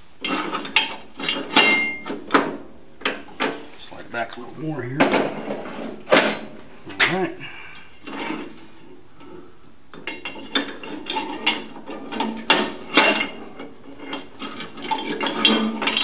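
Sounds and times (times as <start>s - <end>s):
metal clanks and scrapes: 0.2s - 3.8s, 5.0s - 16.0s.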